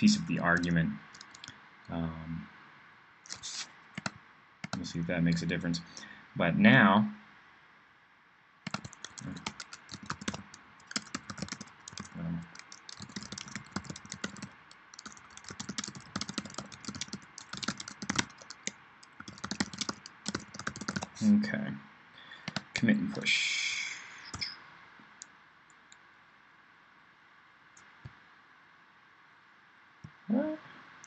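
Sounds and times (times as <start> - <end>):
typing on computer keyboard: 0.4 - 1.5, 3.3 - 4.8, 8.7 - 21.2, 22.4 - 22.7.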